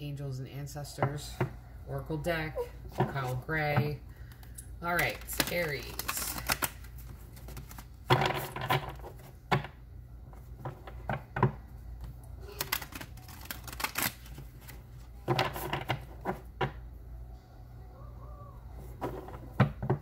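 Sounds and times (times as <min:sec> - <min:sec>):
cards being shuffled: 0:04.2 - 0:09.4, 0:12.0 - 0:16.4.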